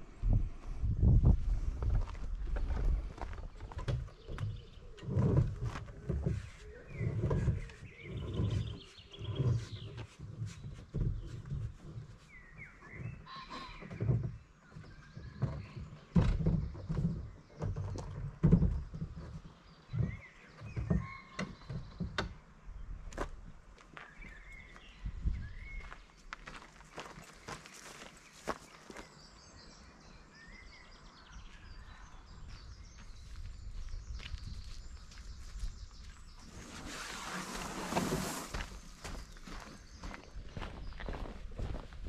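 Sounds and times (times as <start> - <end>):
canoe hull thumping and sliding: 2.5 - 13.2, 13.8 - 22.4, 36.4 - 39.0
footsteps: 25.8 - 29.1, 32.5 - 42.0.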